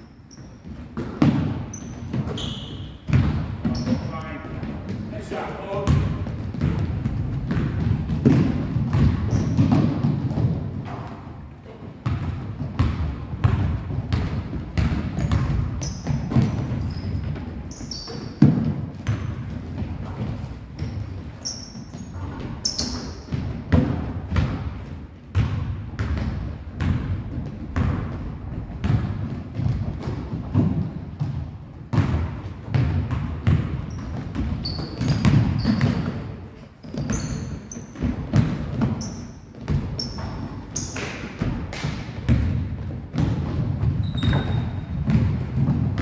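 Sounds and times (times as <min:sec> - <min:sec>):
sneaker squeaks: 0:00.0 - 0:06.8, 0:08.9 - 0:10.1, 0:14.8 - 0:23.5, 0:33.4 - 0:41.5, 0:43.8 - 0:45.7
basketball bouncing on hardwood: 0:00.6 - 0:05.1, 0:05.8 - 0:11.2, 0:12.0 - 0:46.0.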